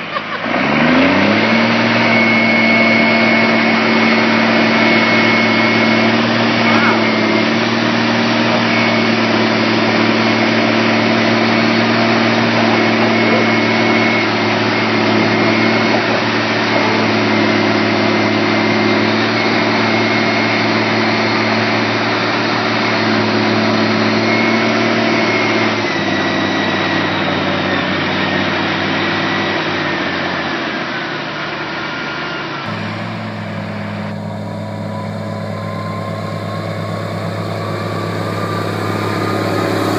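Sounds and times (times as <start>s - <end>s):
diesel engine running: 0.0s - 26.5s, 32.7s - 39.9s
thin high whine: 32.7s - 39.9s.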